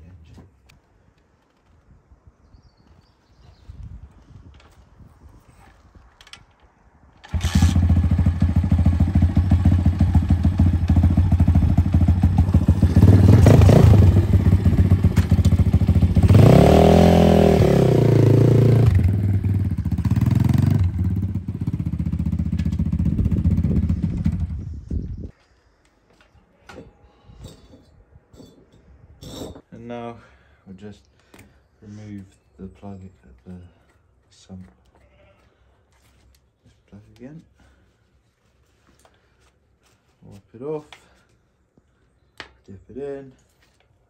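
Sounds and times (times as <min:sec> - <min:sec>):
motorcycle engine revving: 0:07.2 - 0:25.2.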